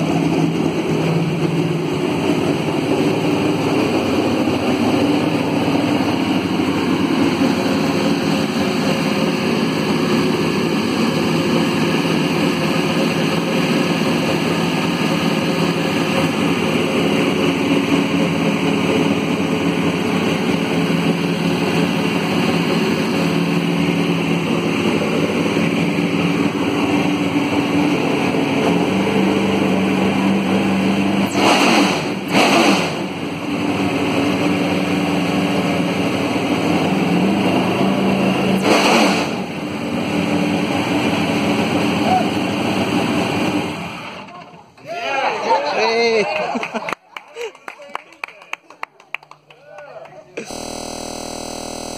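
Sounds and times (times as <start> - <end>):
race car engine idling loud: 0.0 - 31.2, 50.4 - 51.9.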